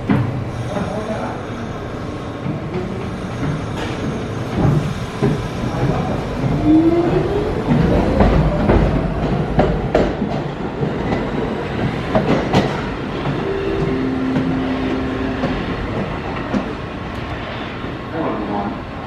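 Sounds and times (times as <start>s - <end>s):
train rumble: 0.0s - 19.0s
train wheels clacking over rail joints: 2.4s - 13.4s
two-note hum: 13.3s - 16.4s.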